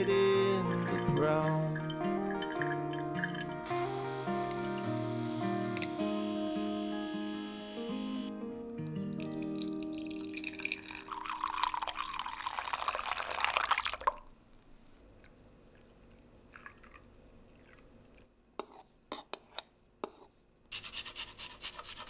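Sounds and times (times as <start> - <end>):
milk pouring: 0.4 - 3.7, 9.2 - 14.3, 15.7 - 18.3
coffee pouring into mug: 0.4 - 3.9, 9.1 - 14.3, 16.5 - 17.9.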